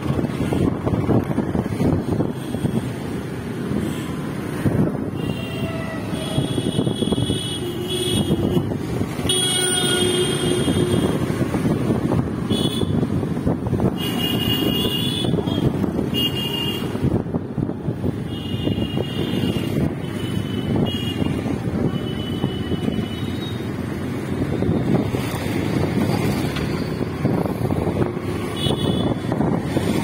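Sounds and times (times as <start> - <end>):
traffic engines and tyres rumbling: 0.0 - 30.0
vehicle horns honking: 5.2 - 11.3, 12.5 - 13.1, 14.0 - 17.0, 18.2 - 23.6, 28.6 - 29.2.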